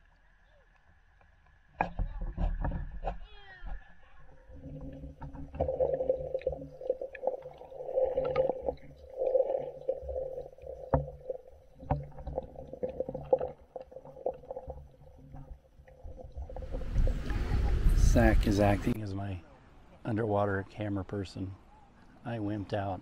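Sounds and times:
underwater water churning: 4.4s - 18.7s.

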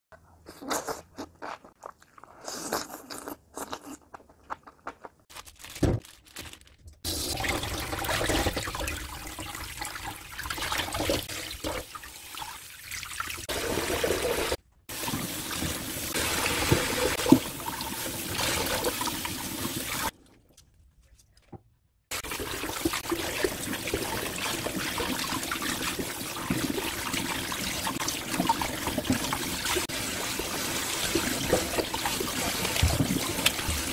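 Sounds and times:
tap water running into colander: 7.1s - 20.1s, 22.1s - 33.9s.

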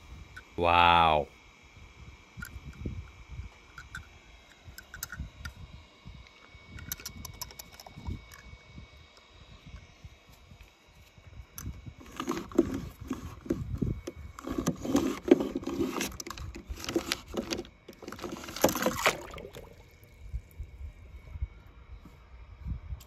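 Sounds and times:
toy wheels scraping paper: 14.4s - 18.6s.

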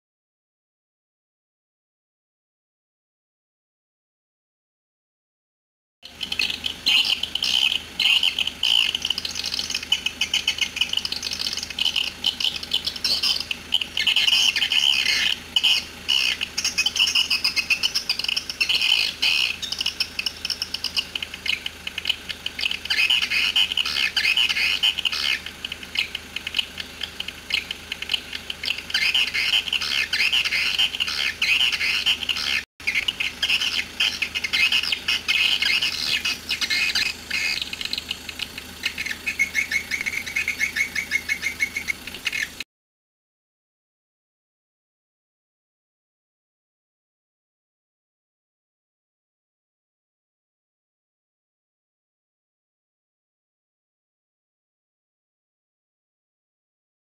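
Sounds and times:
swiftlets chirping and twittering: 6.0s - 42.6s.

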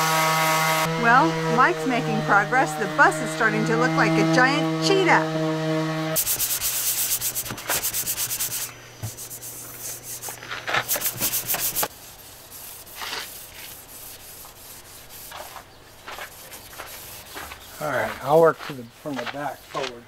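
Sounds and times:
sandpaper scraping on metal: 6.2s - 19.9s.

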